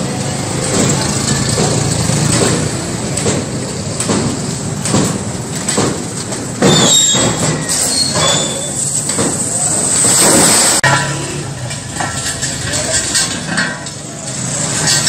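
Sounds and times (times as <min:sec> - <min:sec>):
loud metallic clatter: 0:00.0 - 0:15.0
steel sheets rattling on handcart: 0:00.0 - 0:15.0
high scraping squeaks: 0:06.6 - 0:09.1.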